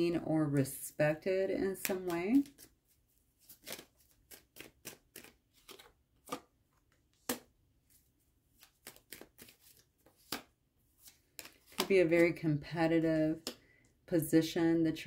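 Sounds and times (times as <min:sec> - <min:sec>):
cards being shuffled: 0:01.7 - 0:12.3.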